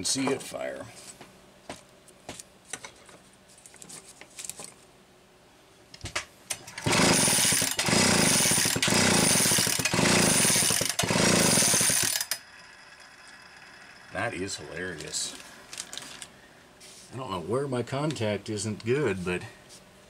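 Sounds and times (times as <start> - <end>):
chainsaw recoil starter pulls: 6.6 - 12.4.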